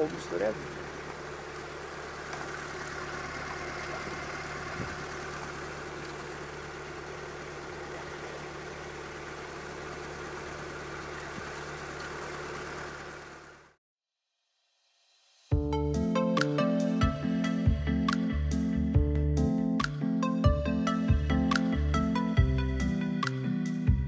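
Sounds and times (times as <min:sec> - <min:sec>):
diesel engine droning: 0:00.0 - 0:13.8.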